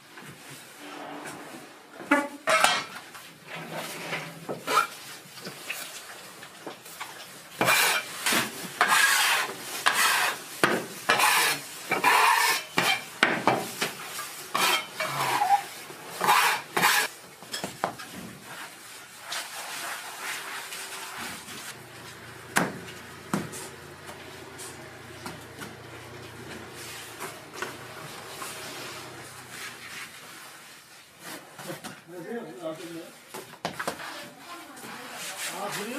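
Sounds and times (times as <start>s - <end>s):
bench scraper chopping dough: 7.6s - 13.7s.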